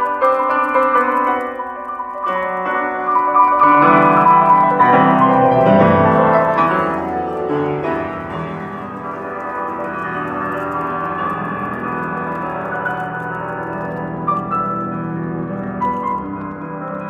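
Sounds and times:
piano music from loudspeakers: 0.0 - 17.0.

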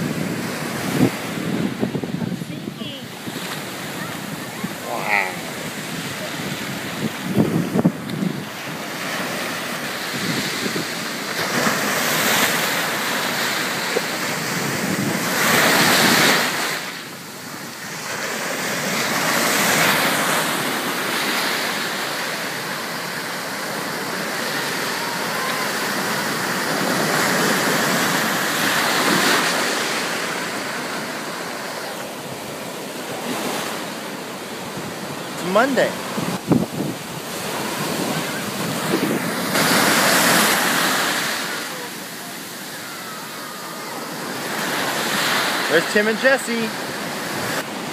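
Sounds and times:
ocean surf breaking: 0.0 - 47.9.

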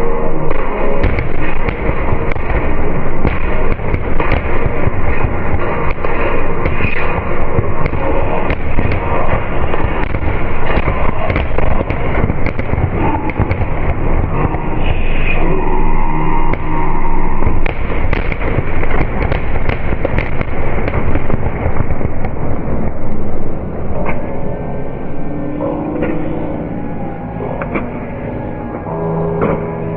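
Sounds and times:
fireworks bursting with sharp bangs: 0.0 - 23.6
music: 0.0 - 29.9.

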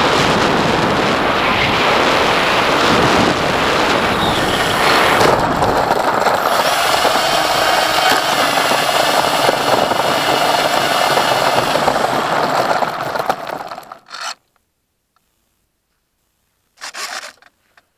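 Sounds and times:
thin motor whine: 3.6 - 14.0.

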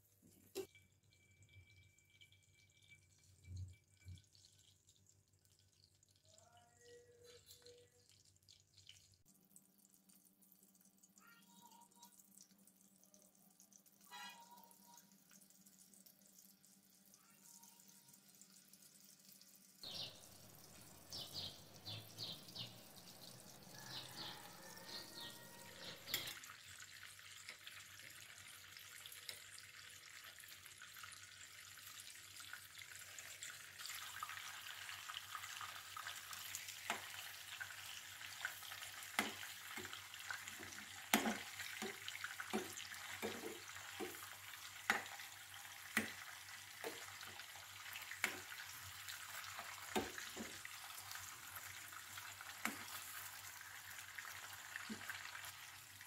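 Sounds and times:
meatballs sizzling in oil: 13.7 - 56.0
spatula tapping and scraping pan: 39.1 - 47.4.

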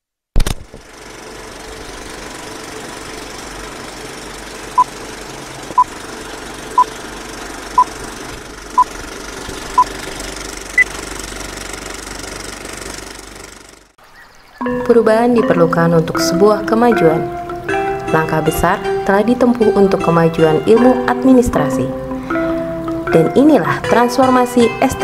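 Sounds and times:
film projector rattling: 0.4 - 14.0.

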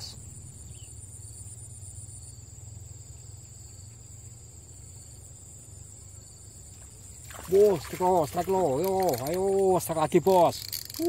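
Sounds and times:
low steady rumble: 0.0 - 7.2
crickets chirring: 0.0 - 11.0
higher insect trill: 0.0 - 11.0.

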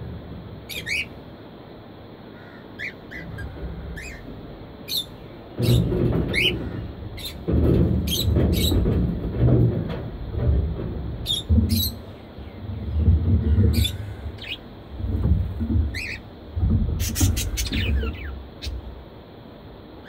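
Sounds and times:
budgerigars chirping: 0.7 - 1.2, 2.4 - 4.2, 4.8 - 6.6, 13.7 - 14.6, 15.9 - 16.2
wind rumbling on microphone: 3.1 - 19.2.

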